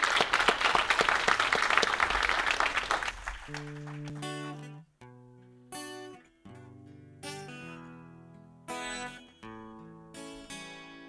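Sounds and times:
audience applauding: 0.0s - 4.5s
acoustic guitar chords: 3.5s - 11.0s.

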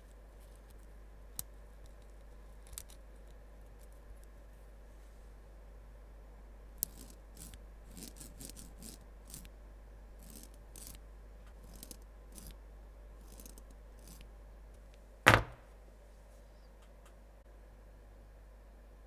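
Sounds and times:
small metal clicks and scrapes: 0.5s - 4.3s, 10.2s - 12.6s, 13.2s - 14.3s
knock on wooden tabletop: 15.3s - 15.6s.

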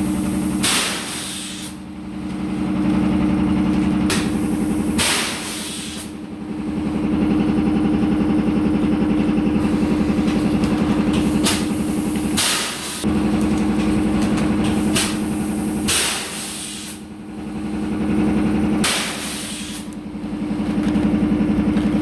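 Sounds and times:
air compressor running: 0.0s - 22.0s.

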